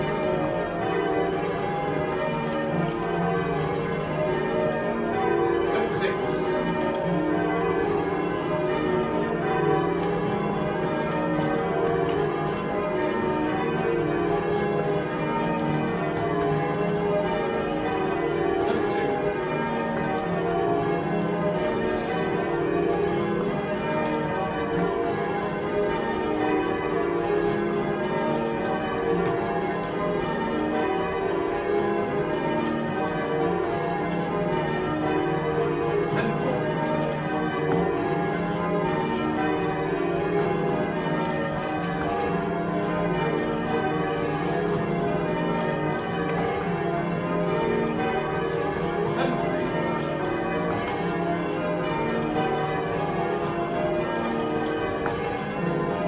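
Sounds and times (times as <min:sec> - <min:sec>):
bells pealing: 0:00.0 - 0:56.0.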